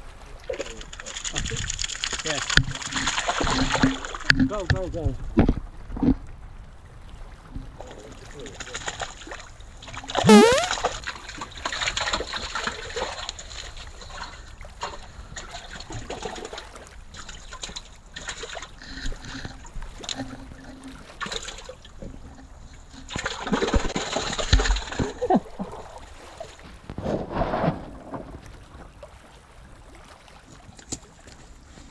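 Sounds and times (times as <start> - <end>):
water trickling over rocks: 0.4 - 4.8.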